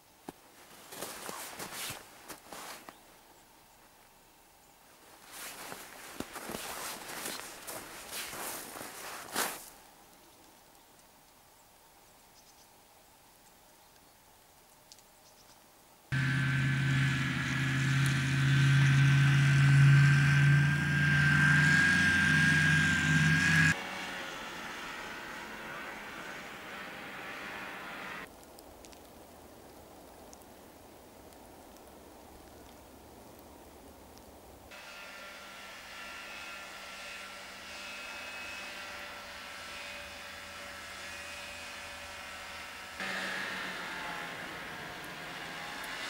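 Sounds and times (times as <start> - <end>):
snowmobile engine driving past: 16.1 - 28.3, 34.7 - 46.0.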